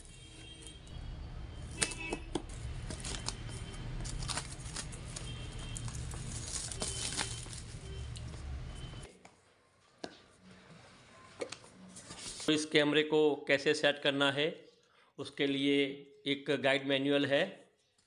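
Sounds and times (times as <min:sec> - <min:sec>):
plastic wrap crinkling and snapping: 0:01.7 - 0:08.5
shrink-wrap being cut: 0:02.6 - 0:07.9.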